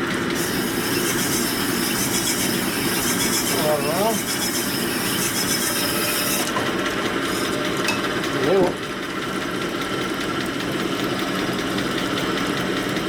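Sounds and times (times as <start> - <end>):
honing machine running: 3.5 - 11.9.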